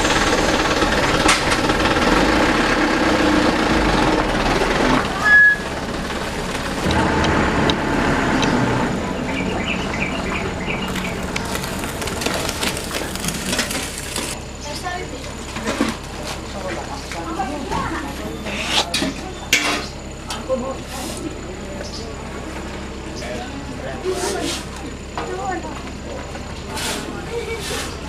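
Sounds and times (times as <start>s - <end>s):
heavy vehicle engine running: 0.0s - 28.0s
high squeal: 5.2s - 5.8s
shovels scraping asphalt: 10.9s - 14.4s, 26.7s - 28.0s.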